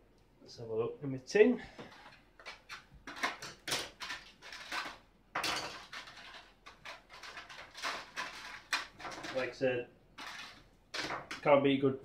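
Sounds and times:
contents rattling in a tin: 1.9s - 9.6s, 10.2s - 11.5s.

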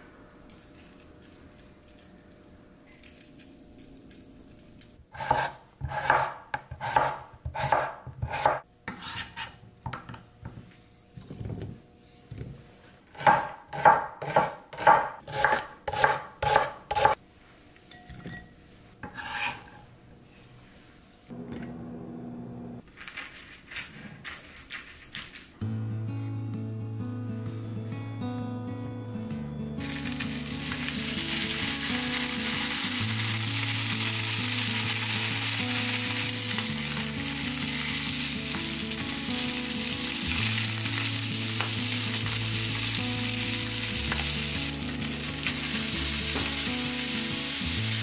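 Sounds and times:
knife chopping on cutting board: 5.2s - 10.1s, 13.1s - 17.2s
steady hum: 19.8s - 22.8s.

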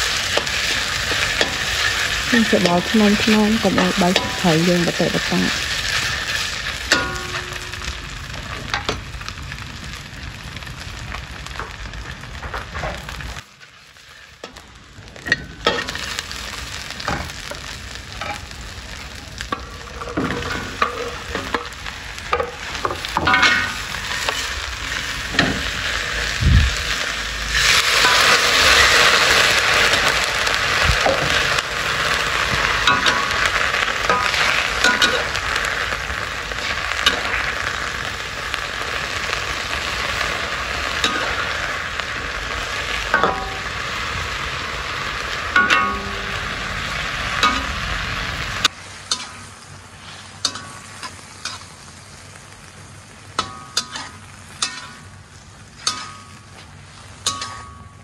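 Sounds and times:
food sizzling in hot oil: 0.0s - 58.0s
metal spatula scraping wok: 19.5s - 26.2s, 32.2s - 38.0s, 45.4s - 51.8s, 53.4s - 58.0s.

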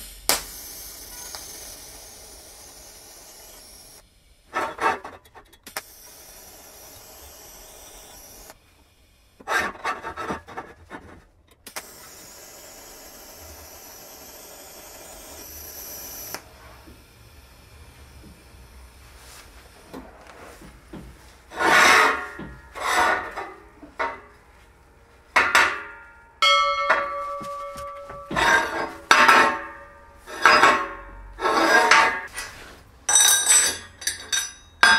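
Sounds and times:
welding arc hissing: 0.0s - 10.0s, 11.6s - 25.8s, 27.6s - 33.6s
rough scraping: 21.4s - 24.1s, 27.1s - 32.9s.

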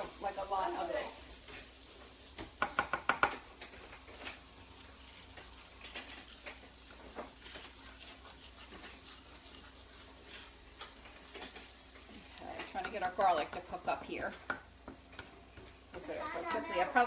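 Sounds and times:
utensil scraping a pan: 0.0s - 14.5s.

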